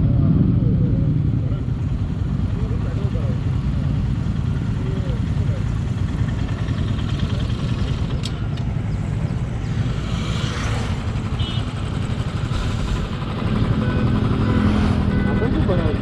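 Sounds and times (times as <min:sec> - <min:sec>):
motorcycle engines idling: 0:00.2 - 0:16.0
motorcycle passing: 0:00.7 - 0:16.0.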